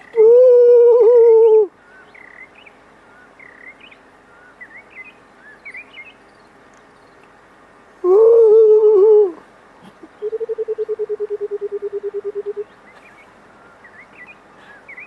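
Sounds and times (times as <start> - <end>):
small birds chirping: 1.7 - 8.0, 9.4 - 15.0.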